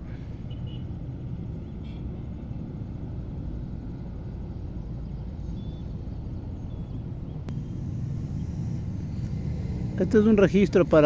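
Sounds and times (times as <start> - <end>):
distant road traffic rumble: 0.0 - 11.0
faint bird chirps: 4.8 - 8.6.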